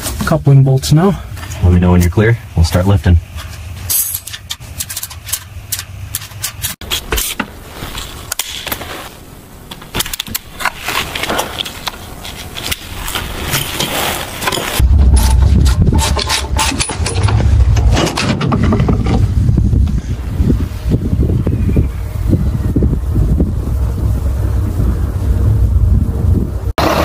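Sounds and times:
loud low rumble: 14.8 - 27.0.

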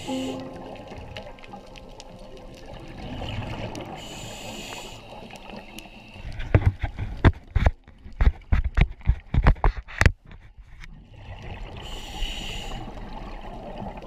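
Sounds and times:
underwater watery rush: 0.0 - 9.6, 11.0 - 14.0.

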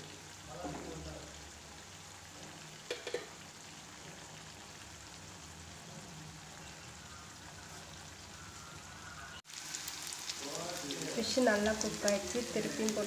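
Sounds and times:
fish sizzling in oil: 0.0 - 13.0
oil popping: 2.4 - 4.3.

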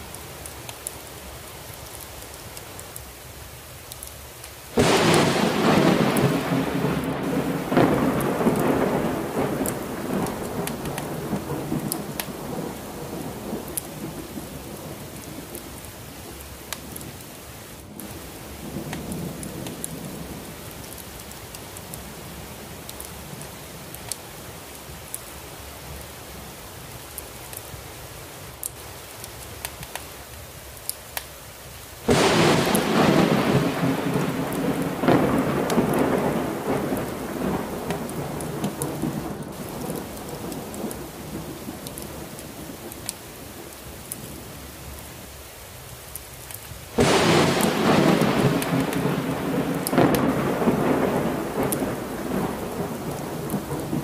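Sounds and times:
steady rain: 0.0 - 54.0
loud thunderclap rolling: 4.8 - 15.6, 32.1 - 42.8, 47.0 - 54.0
faint thunder rumble: 4.8 - 17.2, 18.0 - 21.5, 32.1 - 44.6, 47.0 - 54.0.

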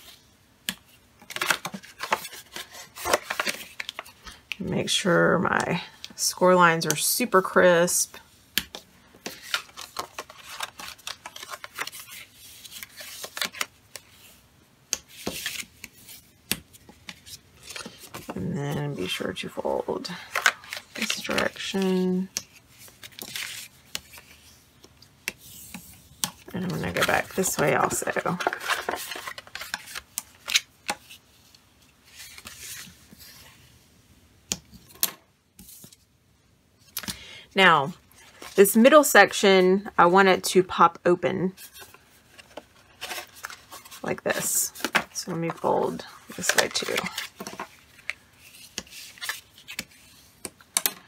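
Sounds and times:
paper rustling and scraping: 1.3 - 4.2, 9.2 - 14.4, 15.1 - 19.2, 20.1 - 24.6, 25.4 - 31.2, 32.0 - 33.7, 41.5 - 50.5.

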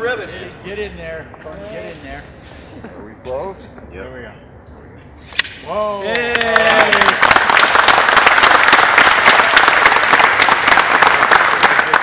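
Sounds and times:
crowd applauding: 6.1 - 12.0.

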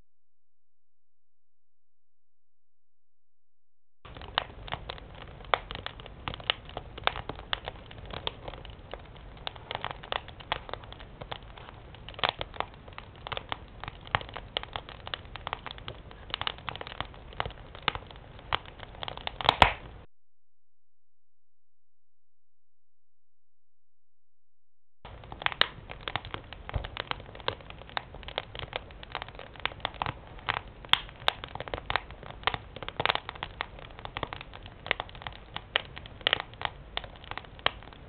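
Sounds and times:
firewood crackling and popping: 4.1 - 20.1, 25.0 - 38.0.

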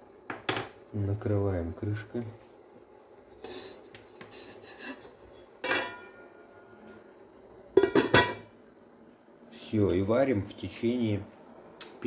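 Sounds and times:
lid clinking on pot rim: 5.6 - 6.2, 7.8 - 8.5.

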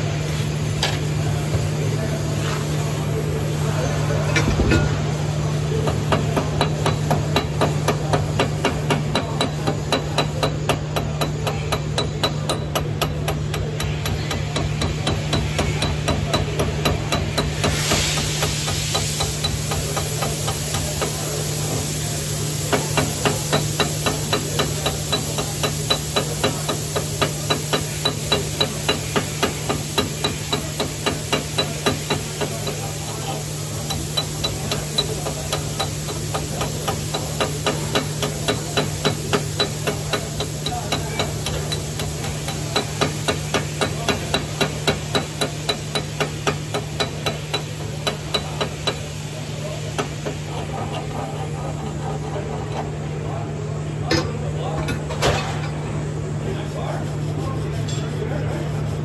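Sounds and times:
steady low hum: 0.0 - 59.0
chipping hammer tapping metal: 5.8 - 21.2, 22.7 - 49.1.

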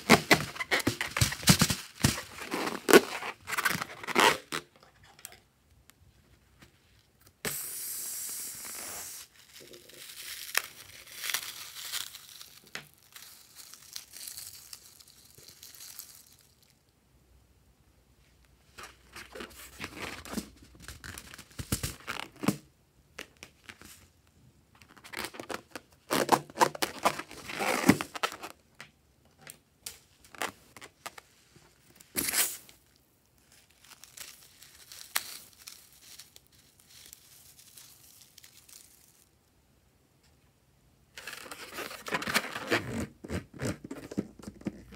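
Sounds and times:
beads sprinkled onto slime: 9.0 - 16.9, 33.4 - 39.3.

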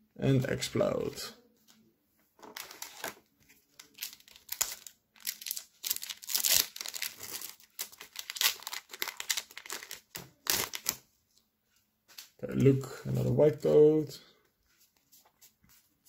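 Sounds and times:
foil wrapper tearing and crinkling: 3.8 - 11.0.

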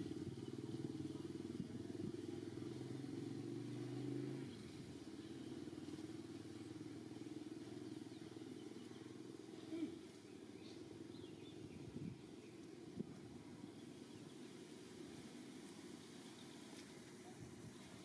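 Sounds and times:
distant engine hum: 0.0 - 18.0.

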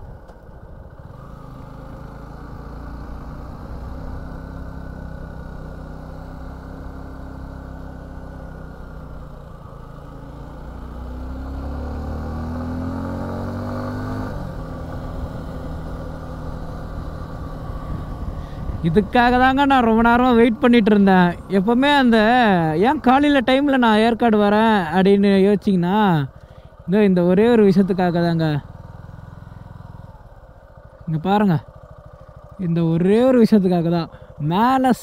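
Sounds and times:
motorcycle engine pulling uphill: 0.0 - 35.0.

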